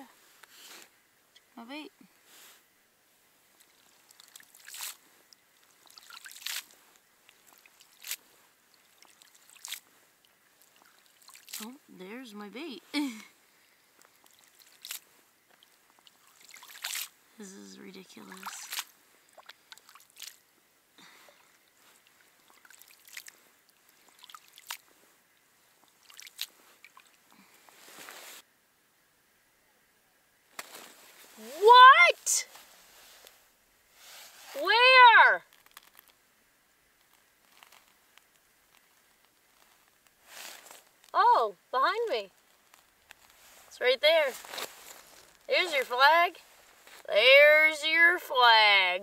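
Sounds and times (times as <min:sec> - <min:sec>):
water dripping: 0:03.5 - 0:11.8, 0:14.0 - 0:20.6, 0:21.2 - 0:27.3
wet weeds swishing and splashing: 0:03.7 - 0:05.0, 0:05.6 - 0:09.9, 0:10.6 - 0:11.8, 0:14.2 - 0:17.2, 0:18.0 - 0:20.4, 0:21.3 - 0:24.9, 0:25.8 - 0:28.4, 0:43.2 - 0:47.1.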